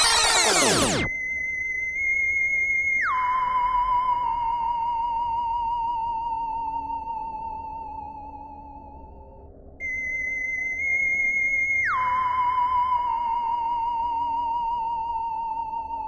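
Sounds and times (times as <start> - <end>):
sliding electronic tone: 0.0 - 1.1.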